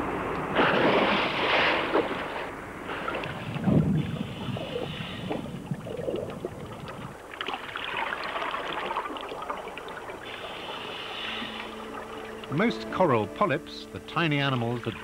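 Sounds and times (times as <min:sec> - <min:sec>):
bubbling exhalation: 0:02.9 - 0:12.4
regulator inhalation hiss: 0:10.3 - 0:12.0.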